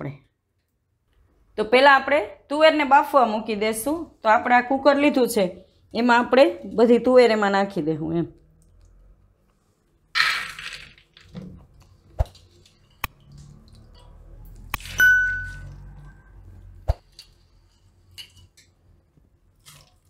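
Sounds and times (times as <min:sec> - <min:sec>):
peas rattling into a pot: 0:10.2 - 0:11.4
ringing ding: 0:15.0 - 0:15.8.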